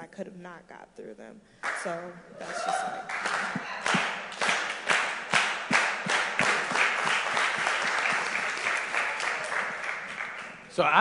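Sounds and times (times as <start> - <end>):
loud individual claps: 1.6 - 10.7
audience applauding: 2.5 - 11.0.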